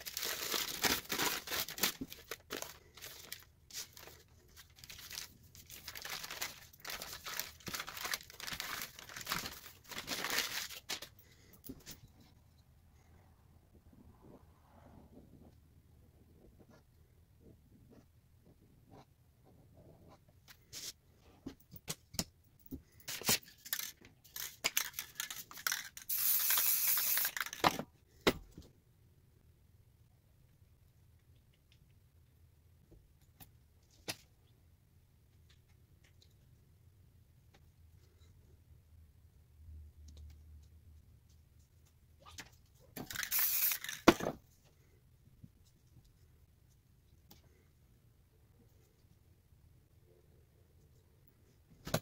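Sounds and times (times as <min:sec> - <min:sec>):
spray paint can hissing: 0:26.1 - 0:27.4, 0:43.1 - 0:44.0.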